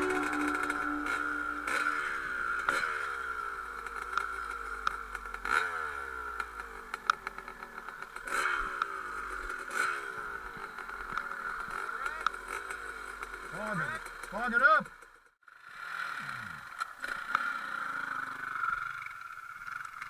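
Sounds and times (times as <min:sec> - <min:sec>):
dirt bike engine revving: 0:00.0 - 0:14.4.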